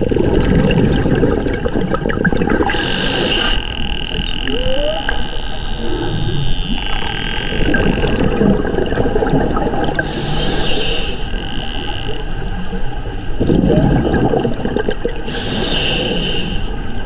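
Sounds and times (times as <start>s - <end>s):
underwater crackle and hiss: 0.0s - 17.0s
dolphins whistling underwater: 1.4s - 12.4s, 14.4s - 16.9s.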